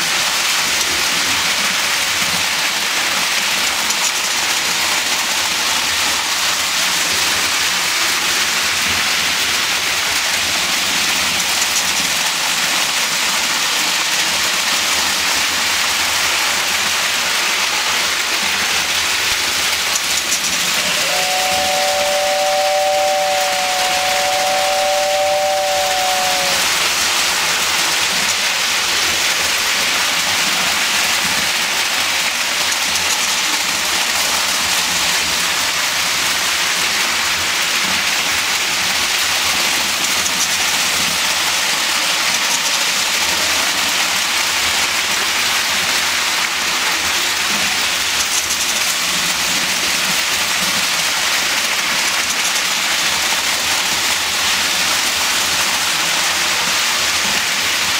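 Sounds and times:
model trains rolling: 0:00.0 - 0:57.9
two-note train whistle: 0:20.6 - 0:27.0.

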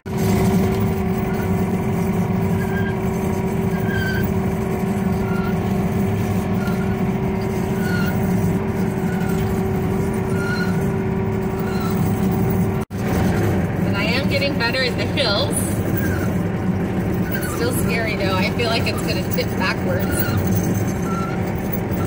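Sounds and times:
skid loader engine droning: 0:00.0 - 0:22.0.

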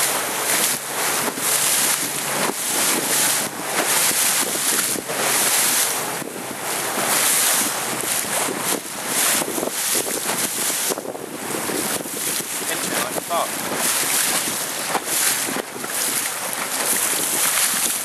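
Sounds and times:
choppy water slapping boat: 0:00.0 - 0:18.0
wind buffeting microphone: 0:00.0 - 0:18.0.

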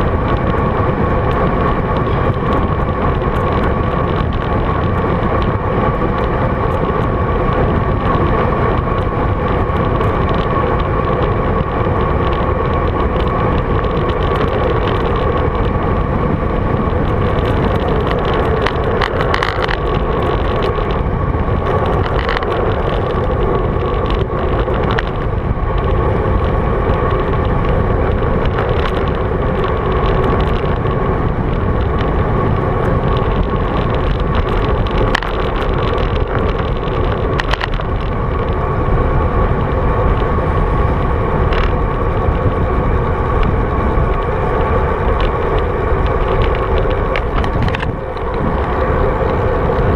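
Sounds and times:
constant hum: 0:00.0 - 0:49.9
road rumble: 0:00.0 - 0:49.9
wind noise on microphone: 0:00.0 - 0:49.9.

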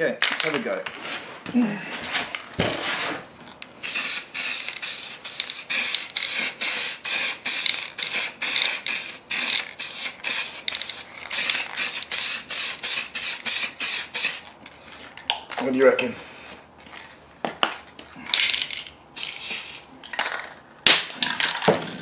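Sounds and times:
spray paint hissing bursts: 0:03.8 - 0:14.5, 0:19.2 - 0:19.9.

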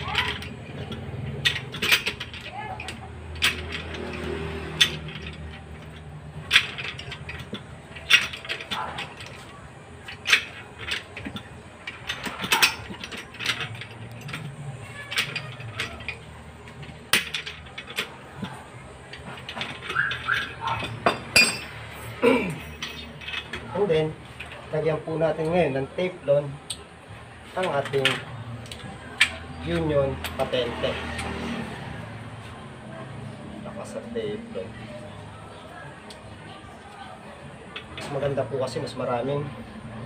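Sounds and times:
metal tools clinking: 0:00.0 - 0:25.8.

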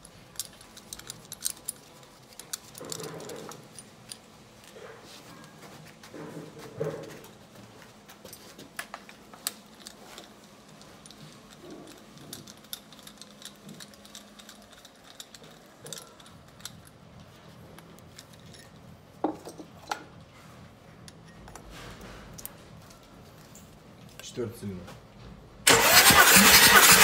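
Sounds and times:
clicks and metallic rattles: 0:00.0 - 0:04.8, 0:08.7 - 0:20.1.

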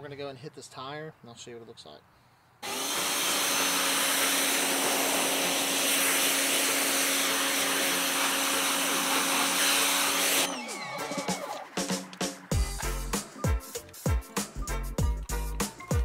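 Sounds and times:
pressure washer motor humming: 0:02.6 - 0:13.0
water jet hissing: 0:02.9 - 0:12.5.

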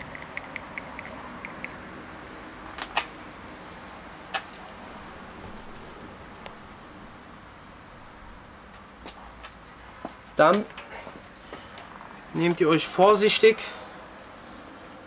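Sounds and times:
sharp clicks: 0:00.0 - 0:01.8.

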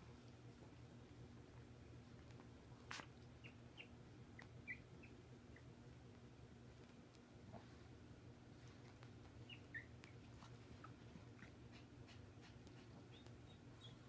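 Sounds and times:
puppies squeaking: 0:02.9 - 0:05.7, 0:09.4 - 0:14.0.

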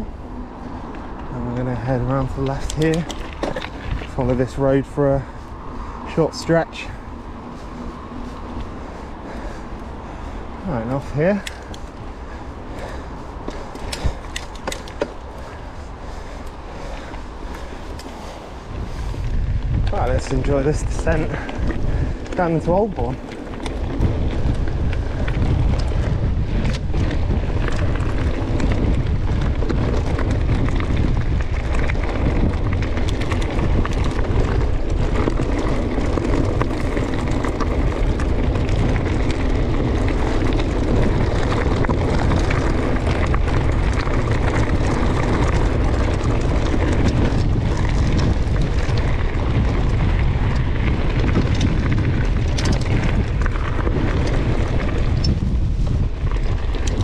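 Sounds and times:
tyres rumbling on gravel track: 0:00.0 - 0:57.0
wind buffeting microphone: 0:00.0 - 0:57.0
bike knocking over bumps: 0:02.3 - 0:04.2.

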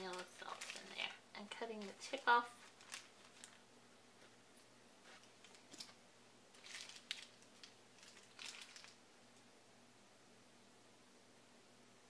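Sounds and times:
plastic bag crinkling: 0:00.0 - 0:04.4, 0:05.0 - 0:09.0.

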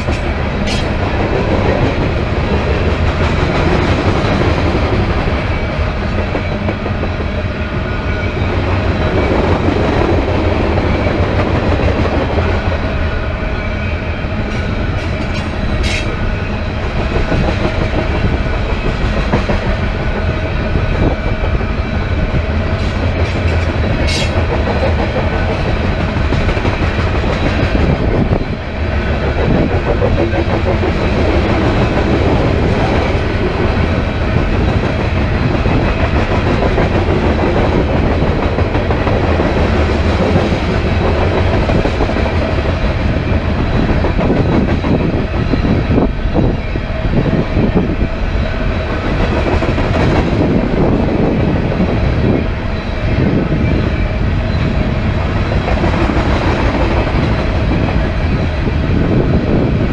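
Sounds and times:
train wheels on rail: 0:00.0 - 0:59.9.

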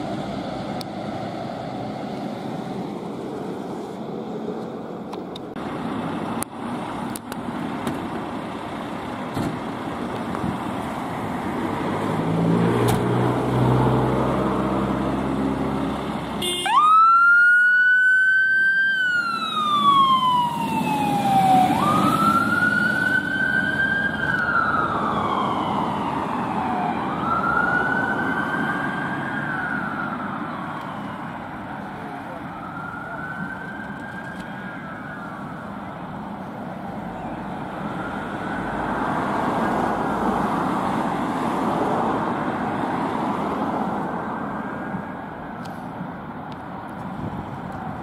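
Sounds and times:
diesel engine running: 0:00.0 - 0:12.2
siren wailing: 0:16.4 - 0:36.1.

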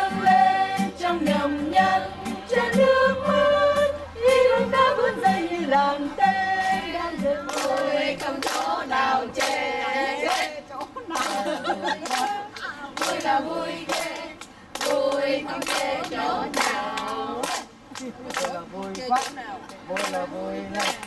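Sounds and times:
group of voices singing: 0:00.0 - 0:17.9, 0:19.9 - 0:21.0
rhythmic hand clapping: 0:07.2 - 0:21.0.

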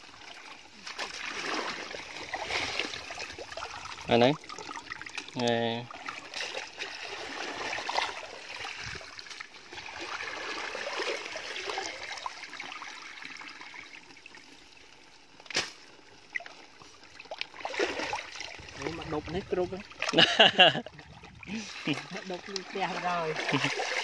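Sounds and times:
muddy water trickling and sloshing: 0:00.0 - 0:24.0.

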